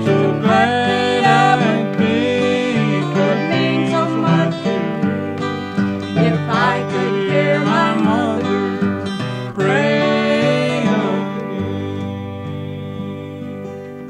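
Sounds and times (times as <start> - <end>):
acoustic guitar: 0.0 - 14.0
person singing: 0.0 - 14.0.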